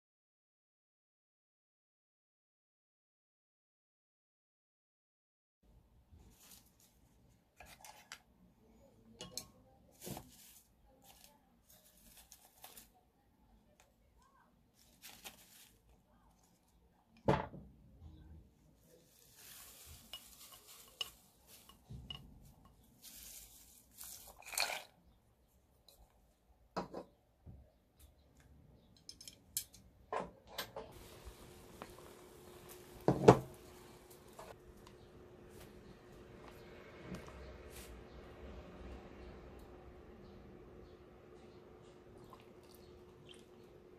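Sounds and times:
dried flakes rustling: 6.2s - 8.1s, 9.9s - 13.0s, 14.7s - 16.8s, 18.9s - 24.8s, 30.9s - 34.8s
broth boiling: 30.9s - 38.4s, 39.3s - 43.9s
gas burner hissing: 31.0s - 34.6s.

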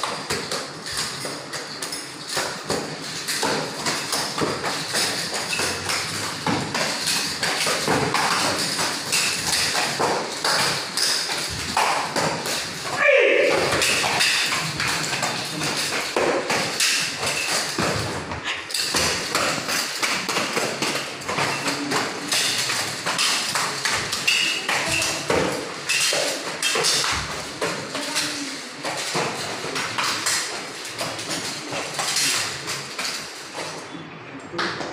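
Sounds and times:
bare feet stamping on tiles: 0.0s - 33.8s.

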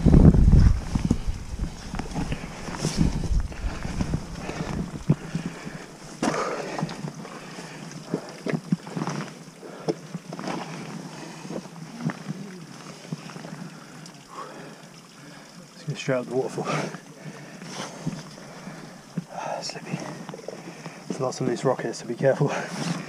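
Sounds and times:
wind noise on microphone: 0.0s - 6.0s
boots knocking and scraping on rock: 0.1s - 7.3s.

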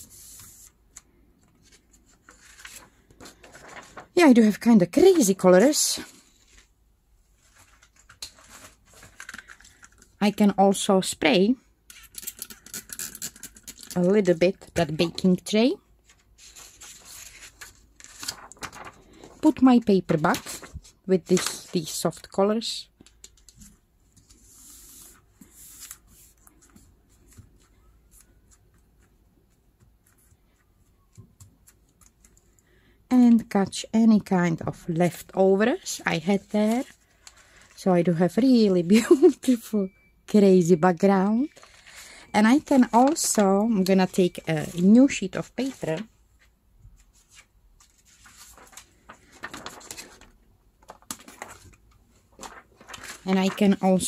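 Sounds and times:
paper rustling: 0.0s - 6.7s, 7.3s - 10.2s, 16.0s - 22.4s, 36.1s - 37.8s, 41.4s - 54.0s.

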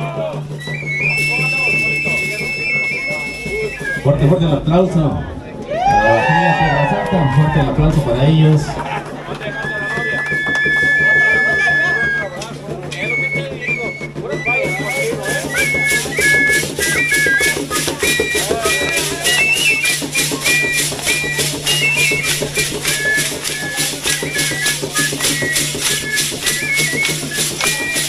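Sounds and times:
high flute melody: 0.0s - 4.7s, 9.4s - 28.0s
rattles shaking rhythmically: 7.6s - 28.0s.

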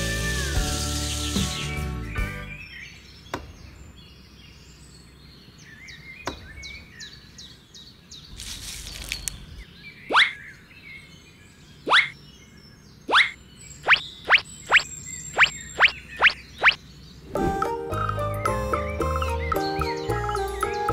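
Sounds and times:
birds chirping: 0.5s - 20.9s
rising bloop sound effects: 11.9s - 12.2s, 13.1s - 16.8s.

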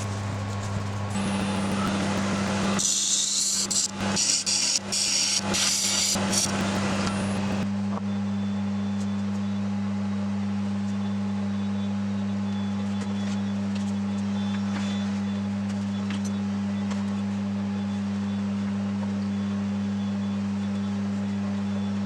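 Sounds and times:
lathe tool cutting wood: 0.0s - 7.6s
machine motor hum: 0.0s - 22.0s.

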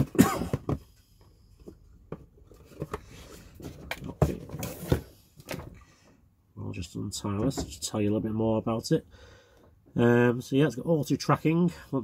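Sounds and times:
person coughing: 0.0s - 0.8s.

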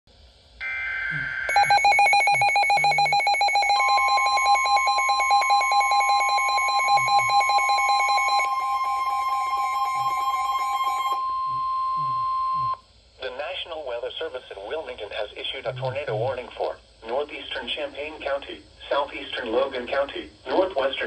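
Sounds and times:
rapid pulsing alarm beep: 0.6s - 12.8s
steady alarm tone: 0.6s - 12.8s.

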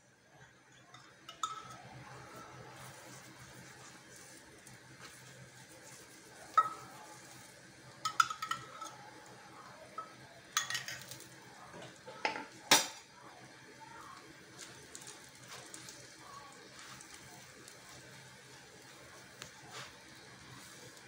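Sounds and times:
metal utensils clinking on griddle: 0.6s - 2.2s, 6.4s - 9.2s, 10.0s - 11.4s.

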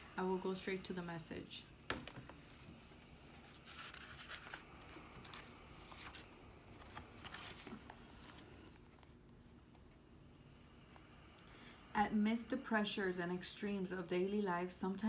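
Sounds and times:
pages flipping: 2.0s - 10.0s.

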